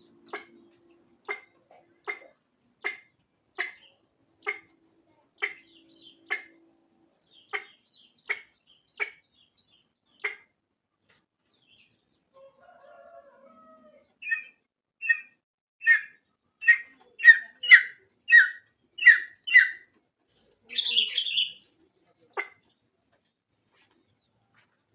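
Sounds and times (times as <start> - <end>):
hen clucking: 0.0 - 6.7, 7.3 - 9.2, 10.1 - 10.5, 12.4 - 19.9, 20.6 - 22.7.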